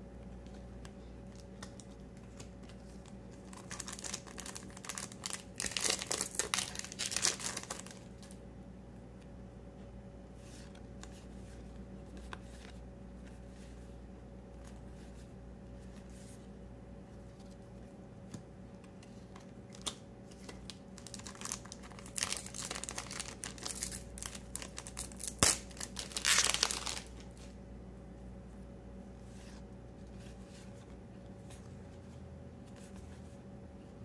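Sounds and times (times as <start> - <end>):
cards crinkling and rustling: 0.3 - 8.4, 18.2 - 27.6.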